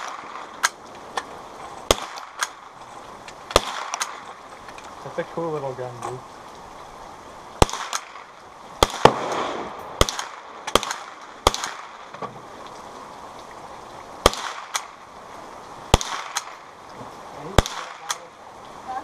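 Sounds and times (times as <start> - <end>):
rifle shots with echo: 1.9 - 2.6, 3.5 - 4.2, 7.6 - 12.1, 14.2 - 15.0, 15.9 - 16.6, 17.6 - 18.2.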